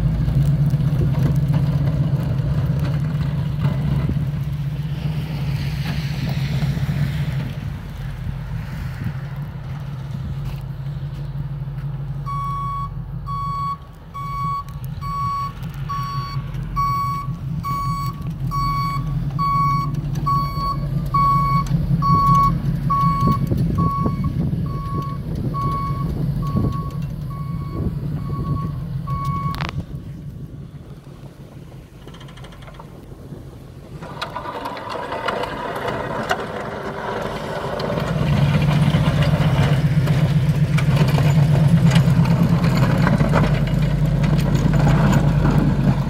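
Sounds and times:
truck engine rumbling: 0.0s - 46.0s
truck backup alarm beeping: 12.2s - 29.8s.

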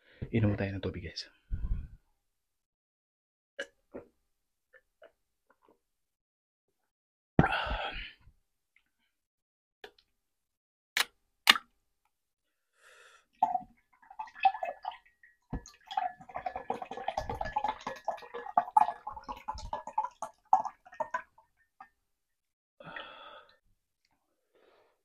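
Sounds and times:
juice pouring into a glass: 13.4s - 21.3s.

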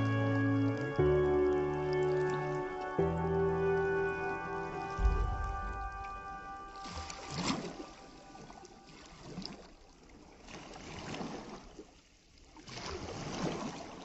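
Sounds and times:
waves washing onto shore: 4.1s - 9.7s.

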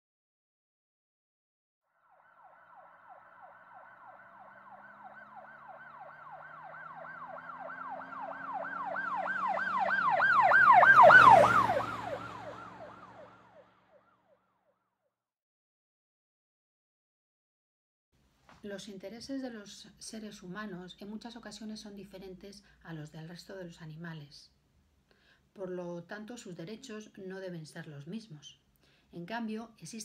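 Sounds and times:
emergency siren yelp: 2.0s - 14.4s.

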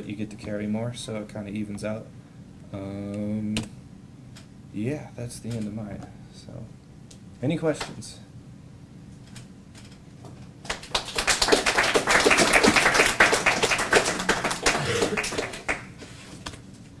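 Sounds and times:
people clapping: 10.6s - 16.0s.

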